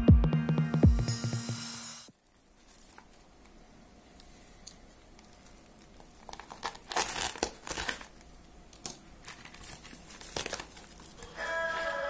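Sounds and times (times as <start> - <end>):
plastic mailer crinkling and tearing: 5.6 - 8.4, 9.2 - 12.0.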